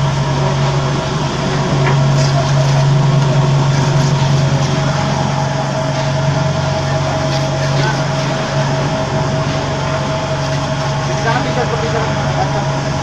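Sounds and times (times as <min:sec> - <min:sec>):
vibrating table humming: 0:00.0 - 0:13.0.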